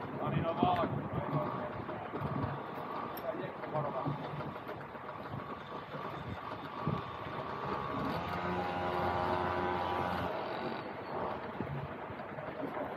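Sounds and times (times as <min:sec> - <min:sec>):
continuous rushing noise: 0:00.0 - 0:12.9
low-pitched motor hum: 0:03.9 - 0:12.1.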